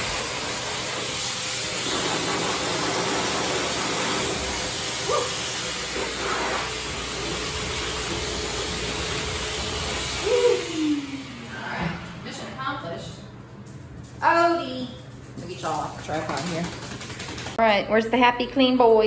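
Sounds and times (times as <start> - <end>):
dryer blowing air: 0.0 - 13.5, 15.6 - 17.6.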